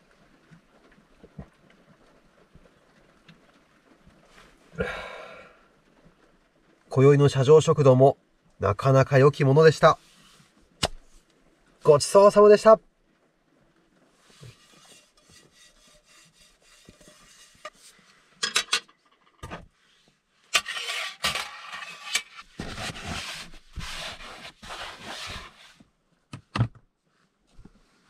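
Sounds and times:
faint rubbing: 9.9s - 11.8s, 13.5s - 18.4s, 19.7s - 25.9s
scraping and rustling: 13.9s - 25.9s.

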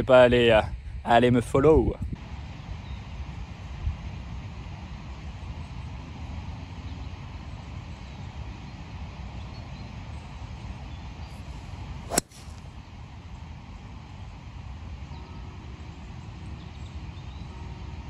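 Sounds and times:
golf club striking ball: 12.1s - 12.6s.

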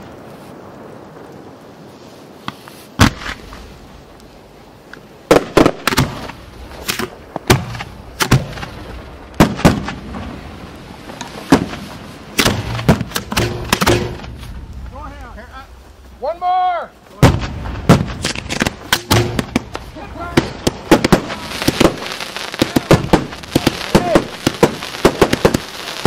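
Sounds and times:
firework mortar bangs: 2.4s - 3.6s, 5.3s - 16.4s, 17.1s - 26.0s.

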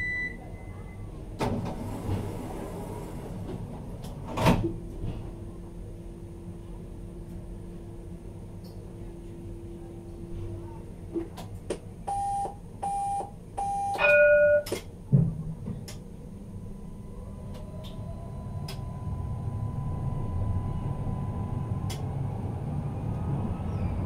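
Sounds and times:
short beeps: 0.0s - 1.0s, 12.1s - 14.7s
tram rolling rumble: 0.0s - 24.0s
tram motor whine: 11.7s - 24.0s.

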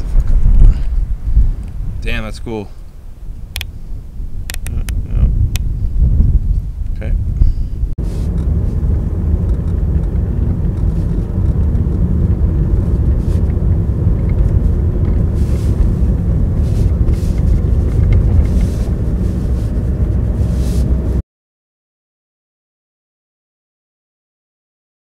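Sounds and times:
car engine and tyre rumble: 0.0s - 21.2s.

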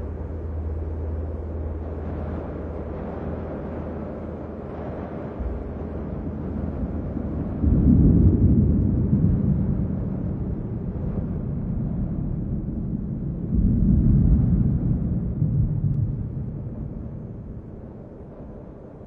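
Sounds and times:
low noisy rumble: 0.0s - 19.0s.

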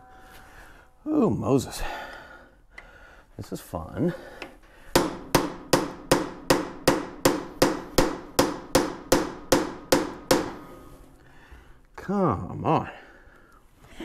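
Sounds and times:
hammer striking metal chisel: 5.0s - 10.9s.

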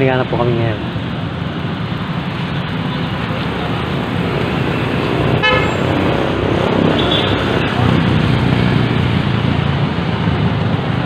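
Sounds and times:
street traffic engine noise: 0.0s - 11.0s
short vehicle horn toot: 5.4s - 5.8s.

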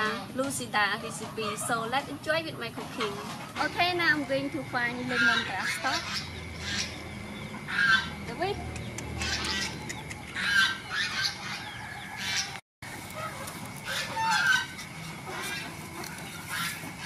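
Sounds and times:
geese honking: 2.7s - 8.3s, 9.2s - 17.0s.

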